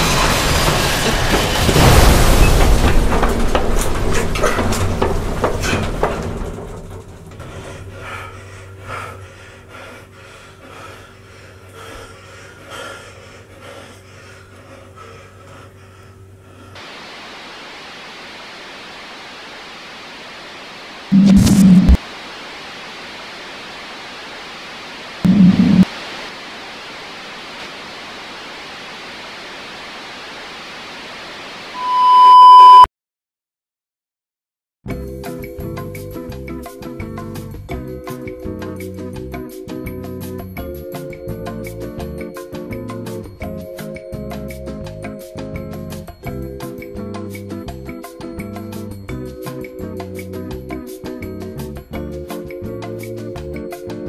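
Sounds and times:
elevator car rumbling and knocking: 0.0s - 8.4s
steady low hum: 7.2s - 28.5s
people panting and gasping: 7.4s - 16.8s
video static hiss: 16.8s - 32.8s
loud steady test tone: 21.1s - 22.0s, 25.2s - 25.9s, 31.8s - 32.9s.

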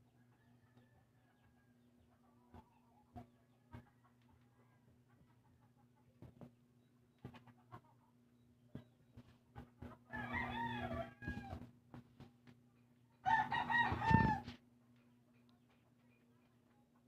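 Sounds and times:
rooster crowing: 10.1s - 11.7s, 13.2s - 14.5s.

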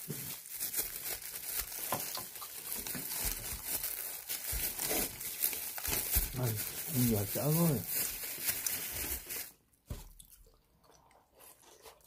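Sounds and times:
chewing crunchy bread: 10.2s - 12.0s.

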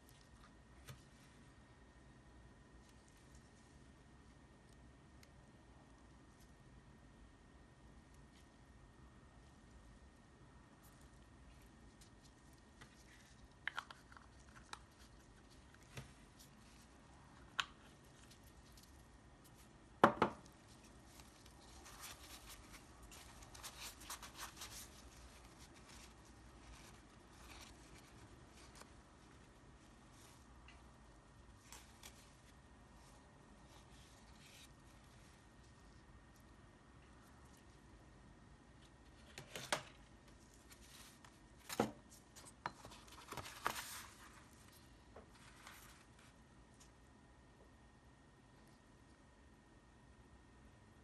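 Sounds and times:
notebook knocking on table: 20.0s - 20.4s
paper towel crinkling: 20.4s - 36.4s
paper rustling: 20.5s - 30.5s, 39.1s - 46.9s.

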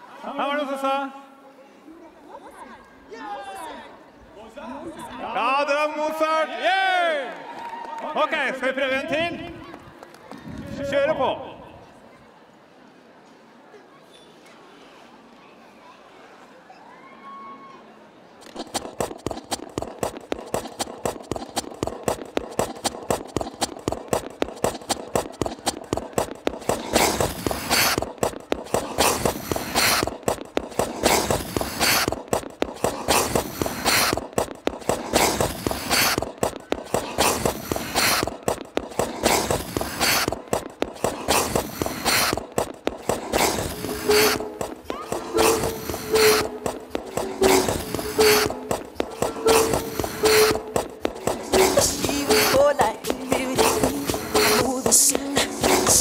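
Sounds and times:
ice-skate blades scraping ice: 18.4s - 56.0s
rhythmic percussive music: 18.4s - 56.0s.

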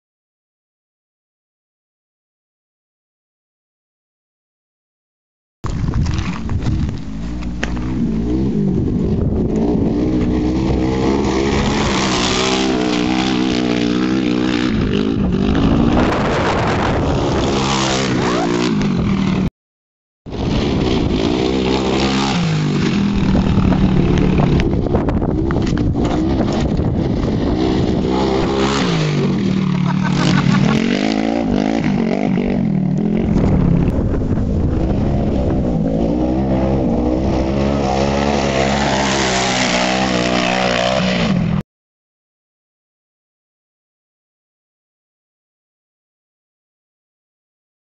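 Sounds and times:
engine revving hard: 7.8s - 19.3s, 20.4s - 24.7s, 26.0s - 33.6s, 34.8s - 41.6s.

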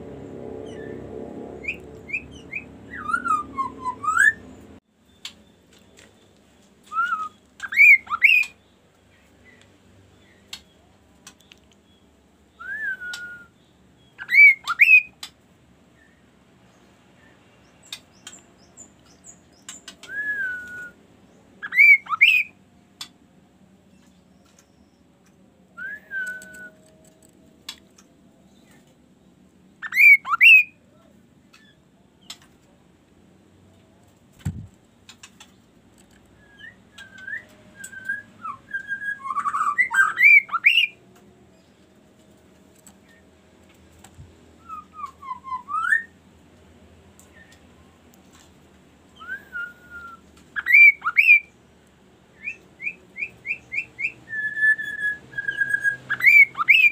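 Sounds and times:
songbird whistling: 1.6s - 6.1s, 6.8s - 8.8s, 11.8s - 15.3s, 17.2s - 21.0s, 21.6s - 22.6s, 25.8s - 27.2s, 29.8s - 30.8s, 36.3s - 41.0s, 44.6s - 46.2s, 47.2s - 47.7s, 49.1s - 51.6s, 52.3s - 56.9s.

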